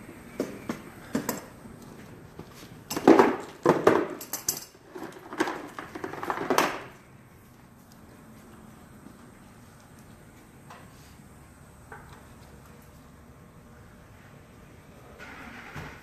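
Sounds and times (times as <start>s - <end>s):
metal objects clattering and clinking: 2.9s - 6.6s.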